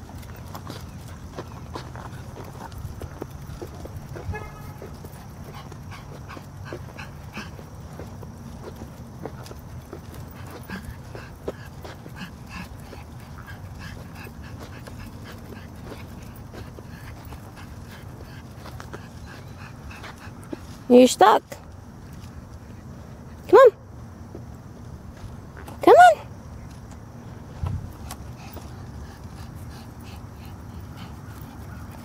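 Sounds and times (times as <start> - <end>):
dog nails clicking on pavement: 0.0 - 20.8.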